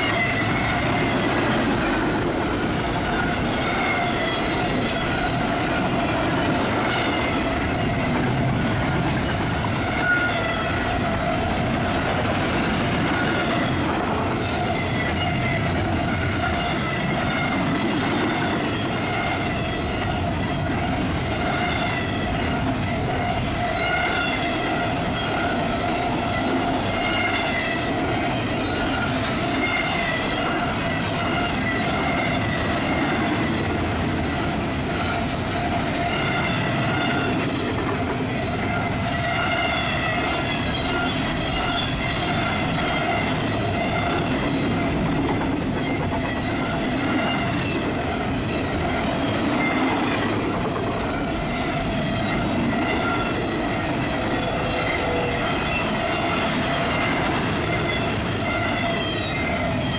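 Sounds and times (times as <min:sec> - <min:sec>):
train cars rumbling past: 0:00.0 - 0:59.9
wavering wheel squeal: 0:06.8 - 0:11.8, 0:14.4 - 0:33.6, 0:38.3 - 0:50.2, 0:51.0 - 0:59.9.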